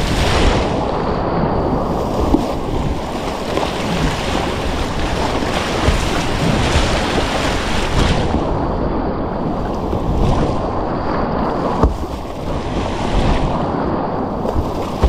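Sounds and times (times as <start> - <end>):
wind buffeting microphone: 0.0 - 15.0
whitewater rushing: 2.0 - 8.6.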